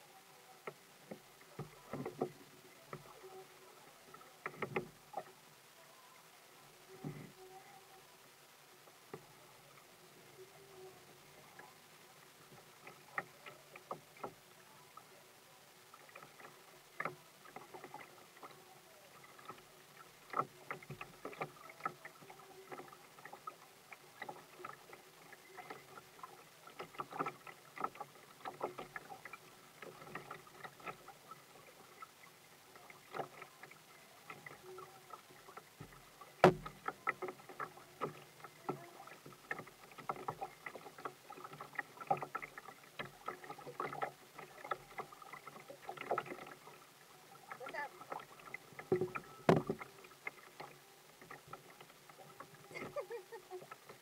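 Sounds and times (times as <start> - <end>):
waves slapping kayak hull: 15.8 - 54.0
sharp knock on hull: 36.4 - 36.7, 49.5 - 49.8.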